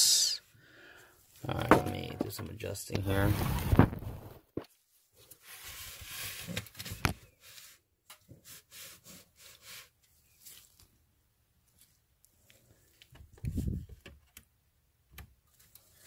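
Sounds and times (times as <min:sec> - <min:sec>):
handling rustle: 0:03.1 - 0:11.0.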